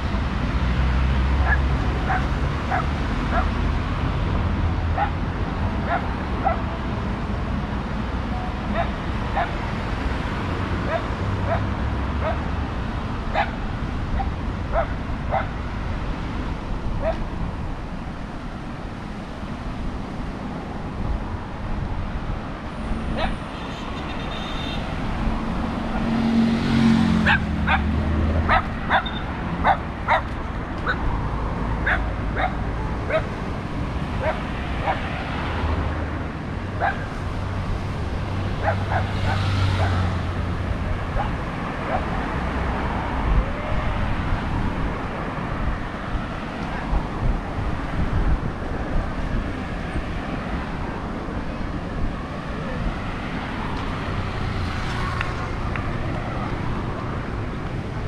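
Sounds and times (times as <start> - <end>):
low street traffic rumble: 0.0 - 58.0
dog barking: 1.4 - 3.5, 5.0 - 5.2, 5.8 - 6.8, 8.7 - 9.6, 10.9 - 12.4, 13.3 - 13.6, 14.2 - 15.6, 17.0 - 17.2, 23.2 - 23.4, 27.2 - 27.9, 28.5 - 31.0, 31.8 - 33.4, 34.2 - 35.1, 36.8 - 37.1, 38.6 - 40.1, 41.1 - 42.1.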